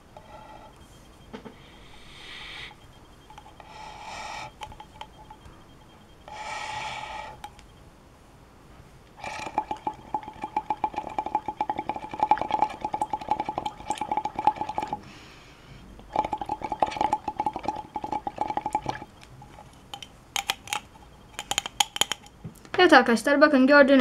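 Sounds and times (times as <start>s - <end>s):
gas bubbling in test tube: 9.2s - 15.0s, 16.0s - 22.2s.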